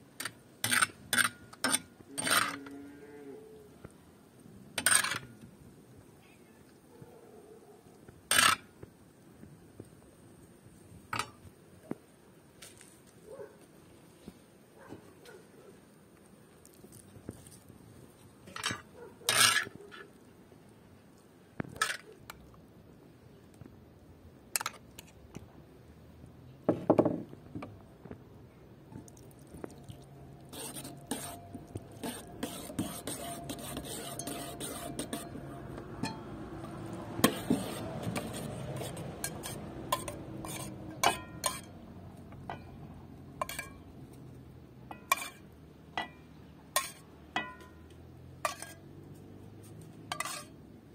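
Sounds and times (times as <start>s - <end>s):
spoon stirring in bowl: 29.0s - 41.7s, 44.9s - 45.4s, 46.8s - 47.7s, 50.1s - 50.6s
metal spoon clinking on cookware: 32.0s - 35.4s, 36.0s - 41.8s, 43.4s - 43.9s, 46.8s - 47.8s, 48.4s - 48.9s, 50.1s - 50.6s.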